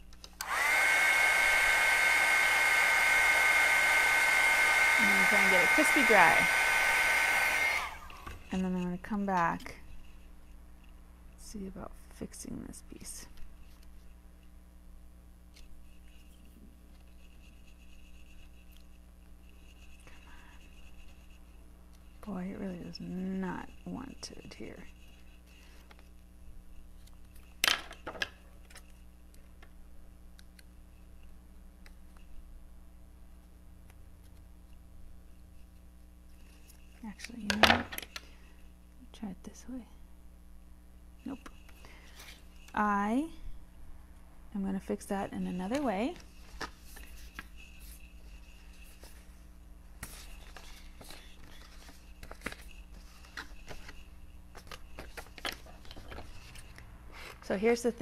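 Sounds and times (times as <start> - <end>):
paper sheets rustling: 50.0 - 57.4.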